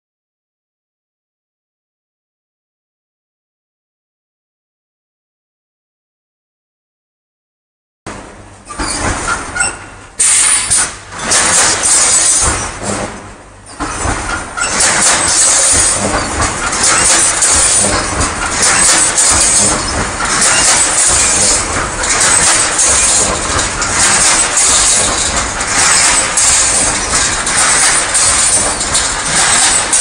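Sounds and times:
mechanical knocks clattering: 8.7s - 30.0s.

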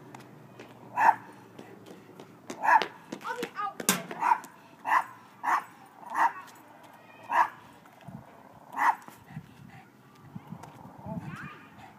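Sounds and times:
dog barking: 1.0s - 1.3s, 2.6s - 2.9s, 4.2s - 6.5s, 7.3s - 7.6s, 8.8s - 9.1s.

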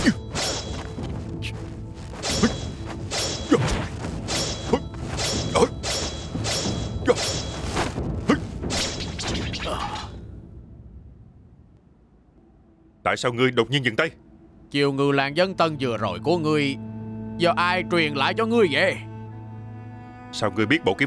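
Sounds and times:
sword swishes and blows: 0.0s - 10.2s
background music score: 0.0s - 21.0s.

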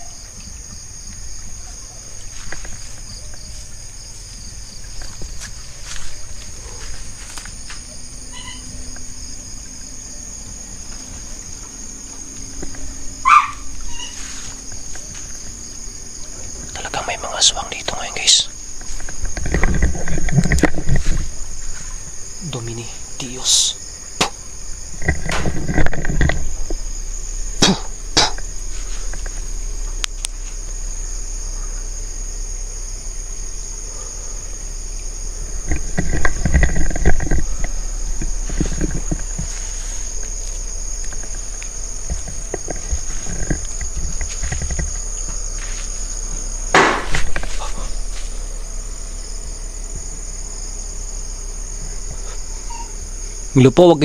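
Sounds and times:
crickets chirring: 0.0s - 54.0s
sharp knocks: 27.6s - 28.4s, 46.7s - 47.4s.

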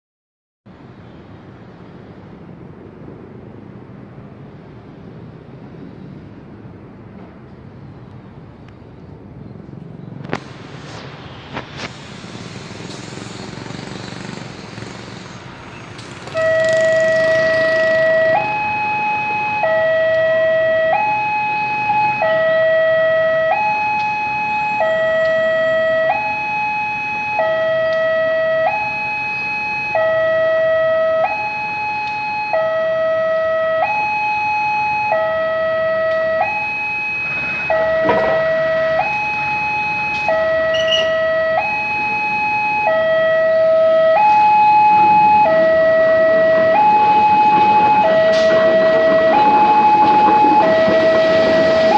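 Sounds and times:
two-tone hi-lo warning alarm: 16.2s - 51.9s.

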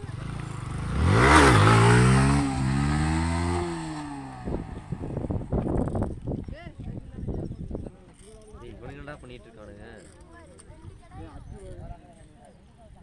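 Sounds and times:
motorcycle engine revving: 0.0s - 6.2s.

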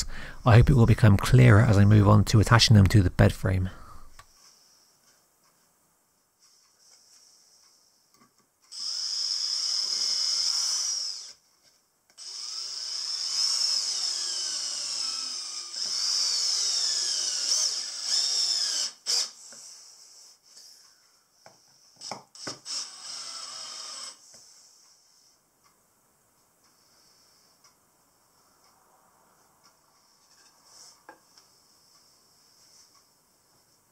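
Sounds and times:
cordless drill motor whine: 8.7s - 11.4s, 12.2s - 19.4s, 22.0s - 24.2s.

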